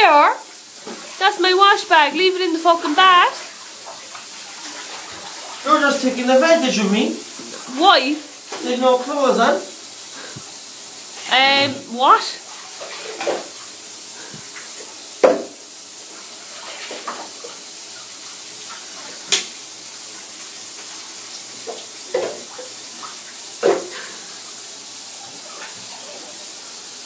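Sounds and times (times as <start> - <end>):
shower water running into bathtub: 0.0 - 27.0
sharp knocks in tub: 15.2 - 15.6, 21.7 - 22.6, 23.6 - 24.0.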